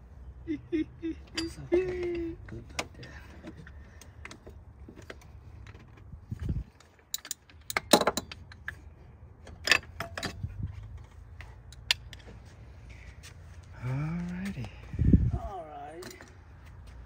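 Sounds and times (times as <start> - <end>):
metal parts clinking: 6.7 - 8.8, 9.4 - 10.5.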